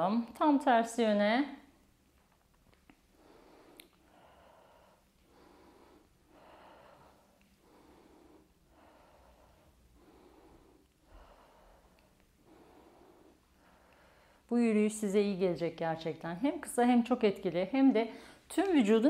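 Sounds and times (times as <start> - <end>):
woman breathing rhythmically: 2.9 - 14.7, 18.0 - 18.5.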